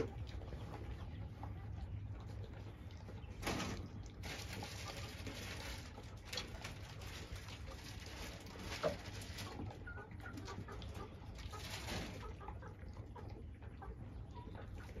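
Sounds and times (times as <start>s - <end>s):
hens clucking softly: 0.0s - 15.0s
goats crunching grain: 2.3s - 12.6s.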